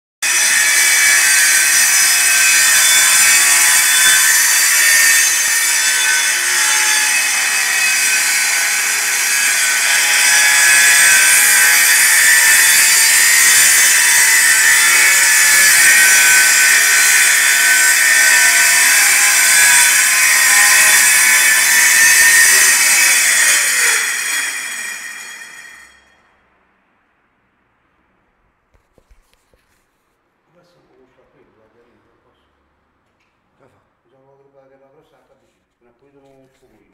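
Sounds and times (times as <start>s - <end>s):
circular saw cutting wood: 0.2s - 26.2s.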